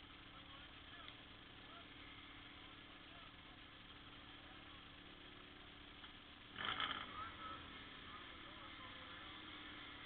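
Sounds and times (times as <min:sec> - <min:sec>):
faint engine hum: 0:00.0 - 0:10.0.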